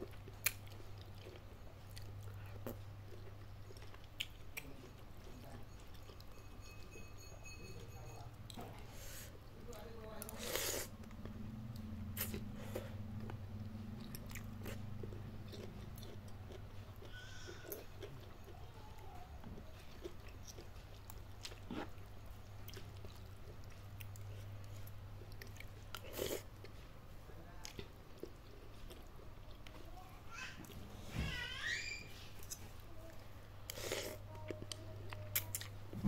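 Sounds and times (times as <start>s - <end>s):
low steady hum: 0.0s - 36.0s
chewing noodles: 10.2s - 26.9s, 27.6s - 29.8s, 32.4s - 35.8s.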